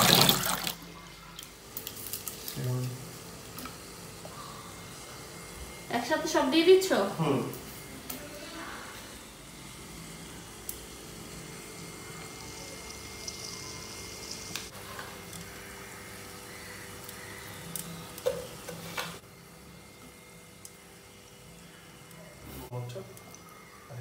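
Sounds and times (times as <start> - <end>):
food sizzling in oil: 10.5 - 19.2.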